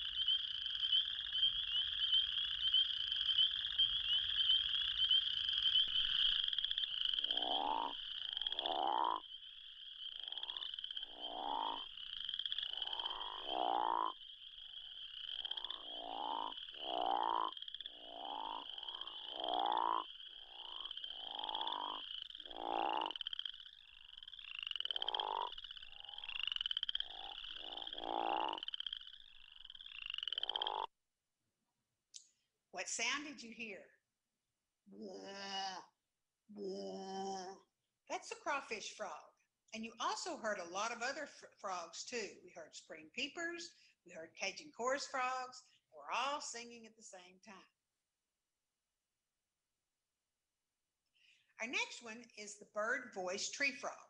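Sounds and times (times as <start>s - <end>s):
frog deep snoring calls: 0.0s - 30.9s
high chorus of frogs: 0.0s - 30.9s, 38.2s - 47.6s, 51.2s - 54.0s.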